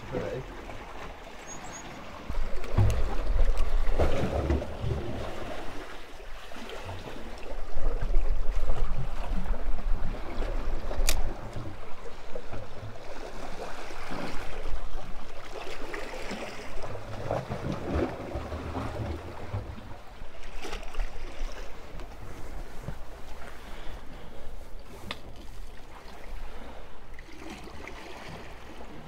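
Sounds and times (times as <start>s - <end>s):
waves lapping against rocks: 0.0s - 29.0s.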